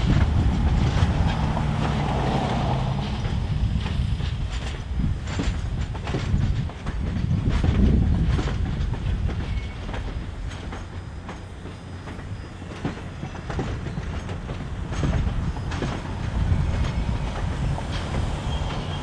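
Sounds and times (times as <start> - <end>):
train wheels rumbling on track: 0.0 - 19.0
wheels clunking over rail joints: 0.0 - 19.0.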